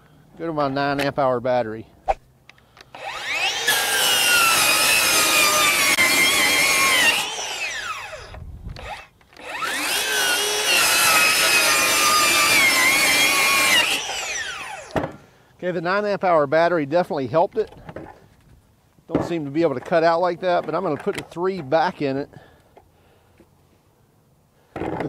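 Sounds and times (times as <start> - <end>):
circular saw cutting plywood: 2.9 - 15.0.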